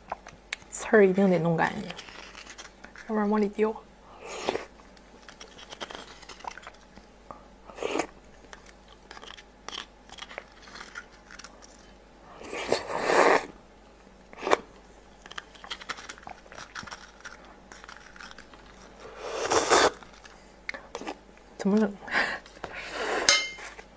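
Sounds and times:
chewing and mouth sounds: 0:00.0 - 0:00.7, 0:04.4 - 0:07.1, 0:14.3 - 0:21.2.

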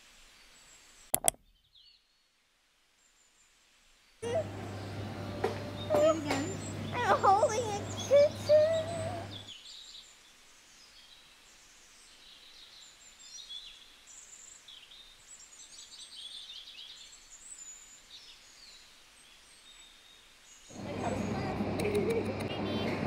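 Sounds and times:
faint birds chirping: 0:03.0 - 0:23.0.

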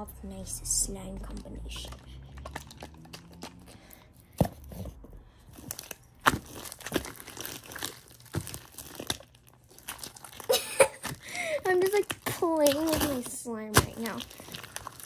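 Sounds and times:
wet crackles and pops of slime: 0:01.2 - 0:04.5, 0:05.5 - 0:15.0
hands squishing sticky slime: 0:01.2 - 0:15.0.

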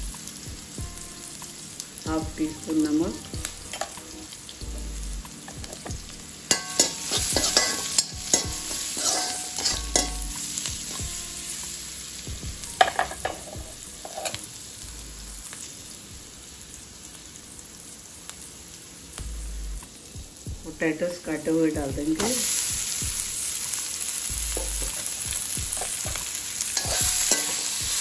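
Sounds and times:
onion sizzling in oil: 0:00.0 - 0:28.0
metal spoon scraping a pan: 0:03.6 - 0:04.4, 0:06.5 - 0:11.0, 0:12.8 - 0:14.5, 0:24.6 - 0:28.0.

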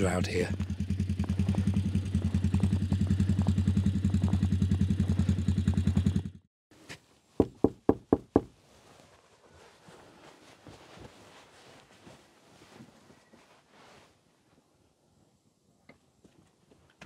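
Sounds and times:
engine idling: 0:00.0 - 0:06.4
knocking on a door: 0:07.4 - 0:08.5.

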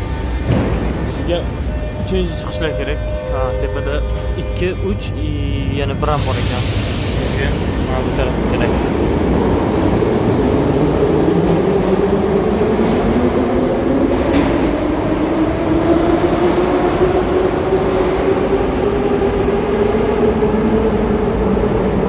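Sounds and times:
metro train rumble: 0:00.0 - 0:22.0.

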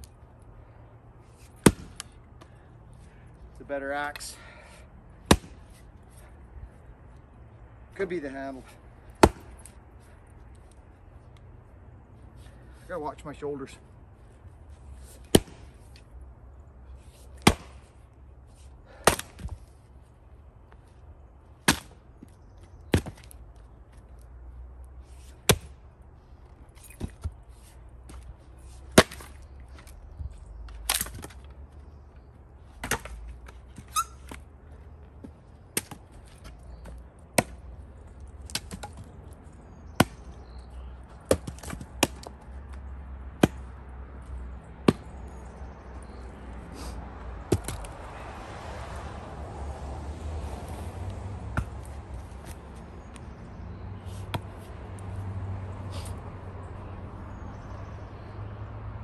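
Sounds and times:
axe chopping wood: 0:01.4 - 0:02.1, 0:05.2 - 0:05.6, 0:09.1 - 0:09.7, 0:15.2 - 0:15.8, 0:17.4 - 0:17.9, 0:18.9 - 0:19.6, 0:21.6 - 0:22.0, 0:22.9 - 0:23.4, 0:25.4 - 0:25.8, 0:28.9 - 0:29.9, 0:30.7 - 0:31.4, 0:32.8 - 0:33.2, 0:35.8 - 0:36.1, 0:36.8 - 0:37.6, 0:38.5 - 0:39.1, 0:39.9 - 0:40.3, 0:41.2 - 0:42.4, 0:43.4 - 0:43.7, 0:44.8 - 0:45.1, 0:47.5 - 0:48.0, 0:51.5 - 0:52.6, 0:54.2 - 0:54.6.

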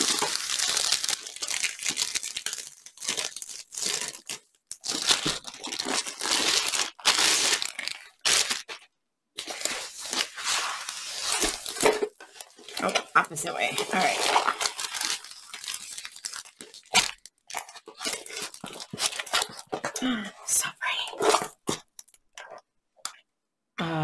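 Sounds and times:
plastic sleeve crinkling: 0:00.0 - 0:20.0
canvas and wrapping rustling: 0:09.6 - 0:17.1.

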